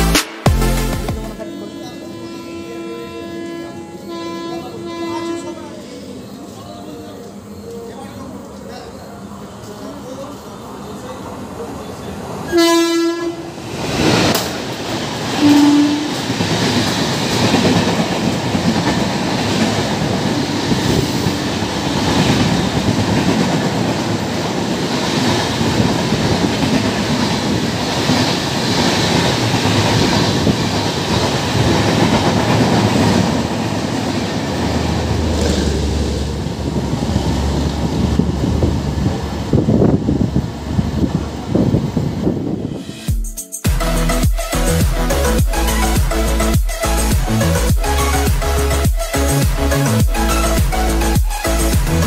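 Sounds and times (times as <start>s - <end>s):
locomotive horn blasts: 1.4s - 5.8s, 12.5s - 13.5s, 15.4s - 16.4s
train wheel and rail noise: 1.4s - 43.1s, 43.9s - 52.0s
deep train rumble: 10.1s - 43.1s, 43.7s - 52.0s.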